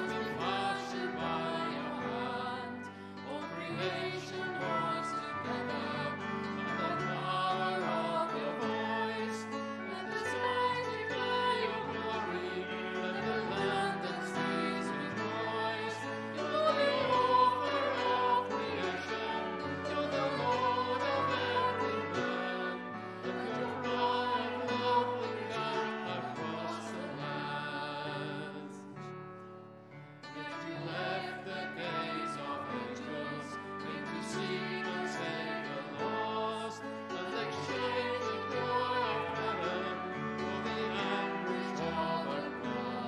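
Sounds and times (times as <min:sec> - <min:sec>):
instrumental accompaniment: 0:00.0 - 0:28.1
congregation singing a hymn: 0:00.0 - 0:29.2, 0:30.2 - 0:43.0.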